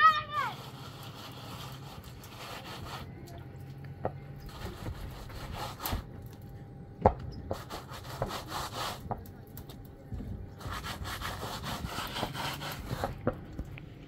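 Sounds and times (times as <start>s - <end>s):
plastering float scraping wall: 0.0s - 3.4s, 4.4s - 6.4s, 7.4s - 9.7s, 10.6s - 13.6s.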